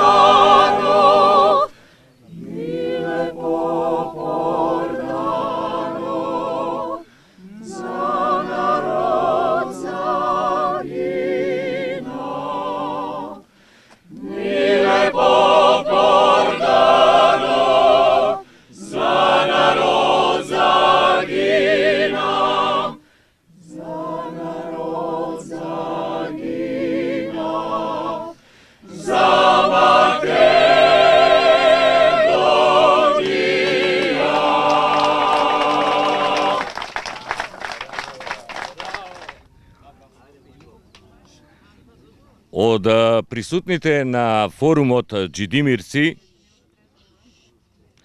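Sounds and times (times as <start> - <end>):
mixed choir singing a cappella: 0.0 - 37.1.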